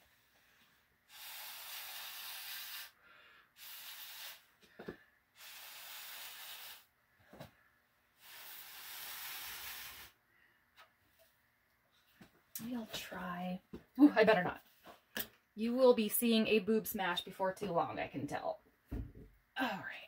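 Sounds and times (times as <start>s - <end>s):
air puffs hissing from baster: 1.1s - 3.0s, 3.6s - 4.5s, 5.4s - 6.9s, 8.2s - 10.2s.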